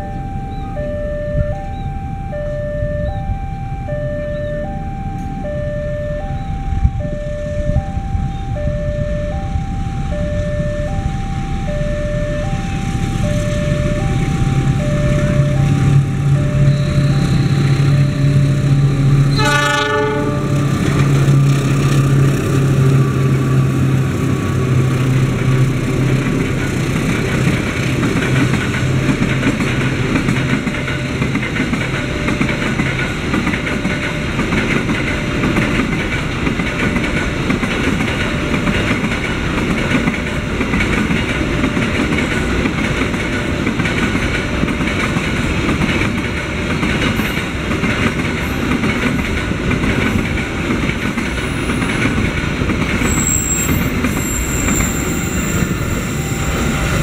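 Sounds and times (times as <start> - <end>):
locomotive engine drone: 0.0 - 57.0
locomotive horn: 3.9 - 21.6
train wheels clacking on rails: 12.5 - 57.0.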